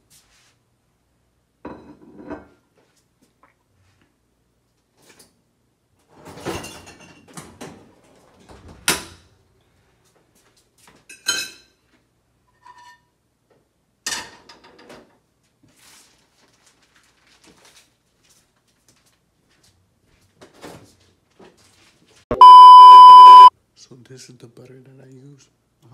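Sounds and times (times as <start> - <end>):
short electronic beep: 22.3 - 23.5.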